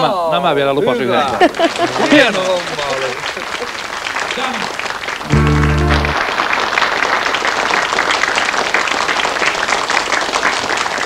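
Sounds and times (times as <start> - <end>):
studio audience applauding: 1.1 - 11.0
short held musical chord: 5.3 - 6.2.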